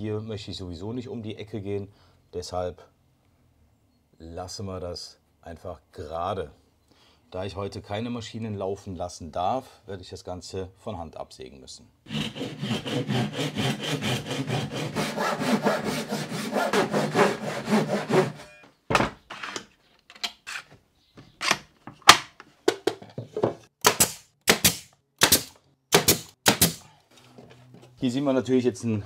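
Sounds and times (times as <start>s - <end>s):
hand saw cutting wood: 12.1s - 18.6s
pneumatic nailer firing: 23.8s - 26.9s.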